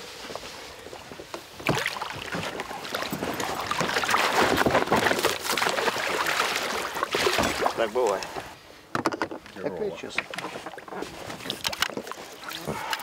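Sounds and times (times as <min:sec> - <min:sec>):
water splashing and sloshing: 0:01.2 - 0:13.0.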